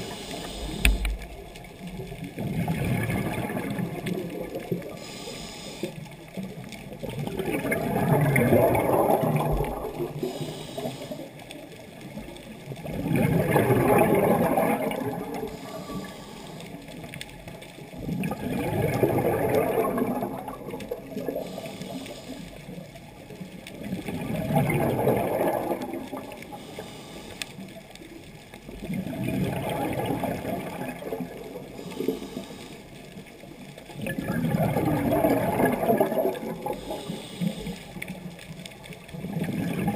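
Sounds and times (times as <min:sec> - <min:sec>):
diver breathing through regulator: 0:00.0 - 0:01.2, 0:04.9 - 0:06.0, 0:10.0 - 0:11.4, 0:15.4 - 0:16.9, 0:21.3 - 0:22.6, 0:26.4 - 0:27.7, 0:31.7 - 0:33.1, 0:36.6 - 0:38.1
air bubbles underwater: 0:00.0 - 0:39.9.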